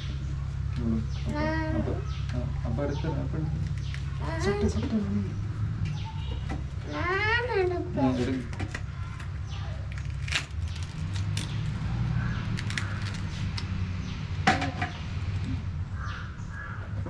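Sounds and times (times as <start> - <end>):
steady low rumble: 0.0 - 17.0
fruit skin cracking and knocking: 8.5 - 13.8.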